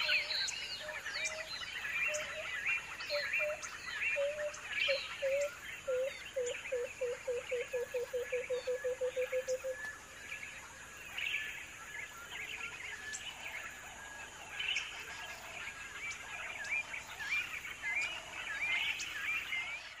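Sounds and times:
birds chirping and twittering: 0.0 - 20.0
bird low hoots: 2.1 - 9.9.

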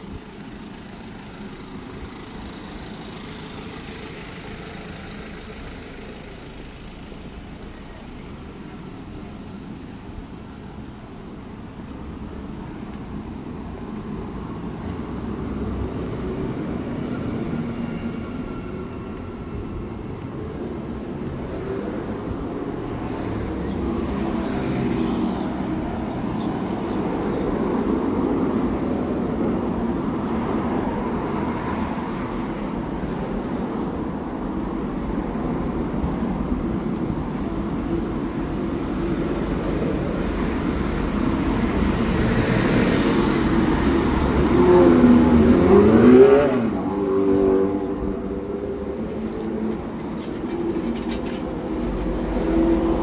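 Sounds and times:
hum of road traffic: 0.0 - 53.0
vehicle passing close: 38.9 - 53.0.

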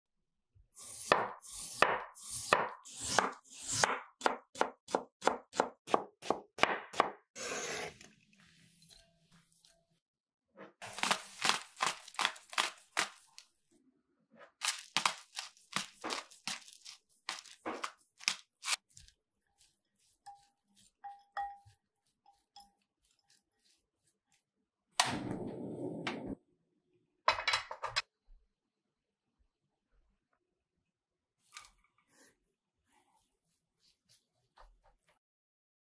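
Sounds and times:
spatula squeaking in glass bowl: 19.5 - 24.1.

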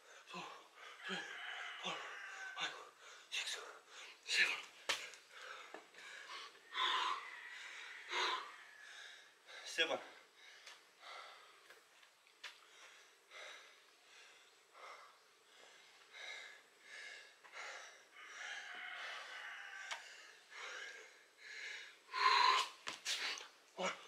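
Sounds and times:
person breathing hard: 0.0 - 24.0
gasping breath: 12.6 - 23.5.

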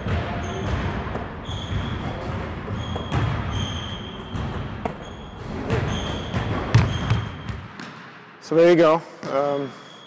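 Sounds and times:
basketball bouncing on hardwood floor: 0.0 - 8.0
ball striking rim and backboard: 0.0 - 8.2
wheelchair tyres squeaking: 0.4 - 7.2.

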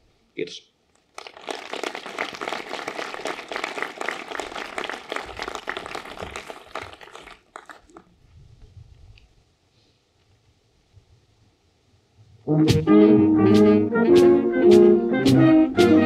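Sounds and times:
audience applauding: 1.1 - 8.1.

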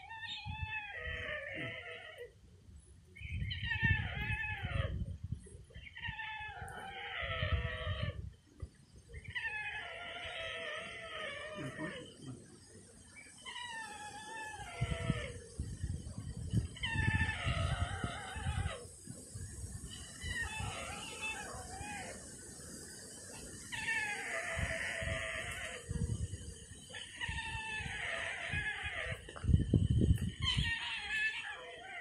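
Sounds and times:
stork mewing calls: 9.2 - 12.5, 13.3 - 15.8, 19.6 - 29.4.

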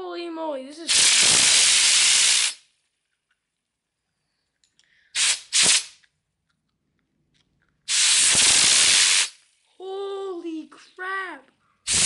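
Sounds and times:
compressed air hissing: 0.9 - 2.7, 5.1 - 6.0, 7.9 - 9.5.

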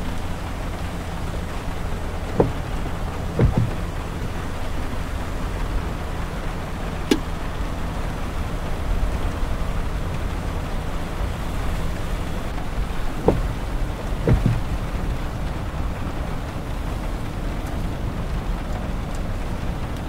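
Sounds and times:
road rumble and tyre hiss: 0.0 - 20.0
windshield wiper sweeping: 0.0 - 20.0.

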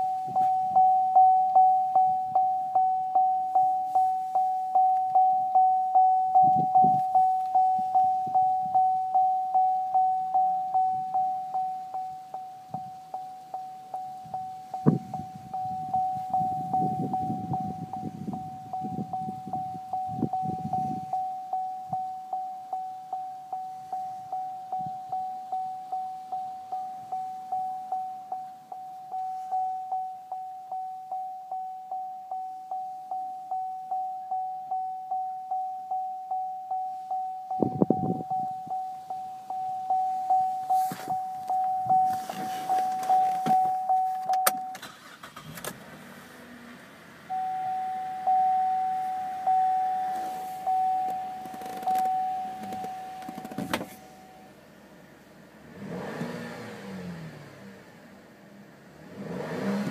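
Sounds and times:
dashboard warning chime dinging: 0.0 - 59.9
thump: 53.3 - 54.0.

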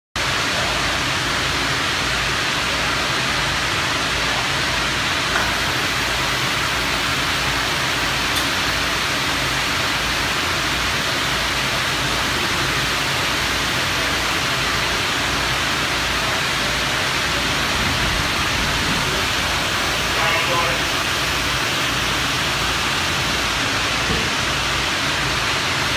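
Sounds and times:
industrial furnace roar: 0.2 - 25.9.

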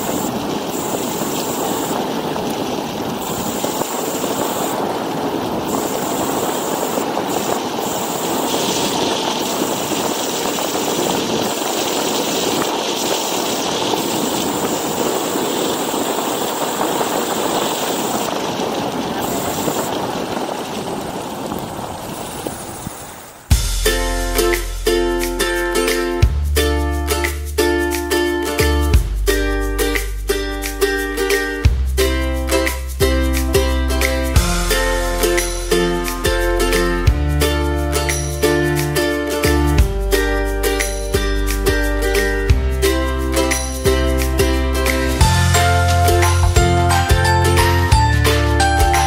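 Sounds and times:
scooter road noise: 0.0 - 23.6
rushing wind: 0.0 - 24.8.

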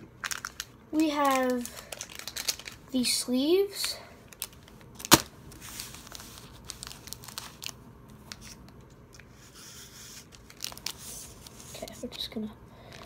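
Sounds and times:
plastic packaging crinkling: 0.1 - 3.2, 3.8 - 8.9, 10.2 - 12.2.

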